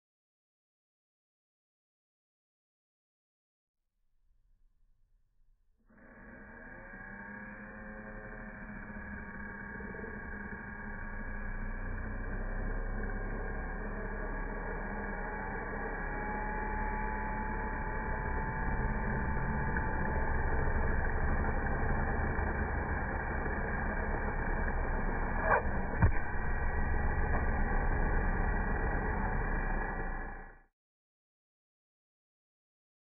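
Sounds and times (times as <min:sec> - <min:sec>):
faint motor whine: 0:05.9 - 0:30.6
electric motors humming: 0:06.0 - 0:30.6.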